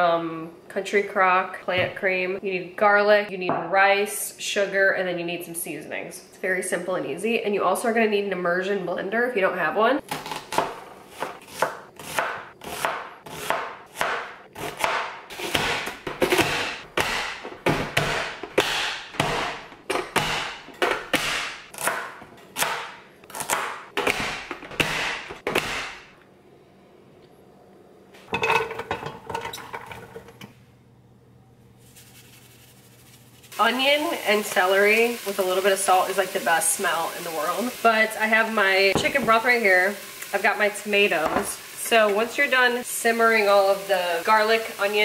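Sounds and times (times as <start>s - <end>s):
knife chopping on cutting board: 10.2s - 26.1s.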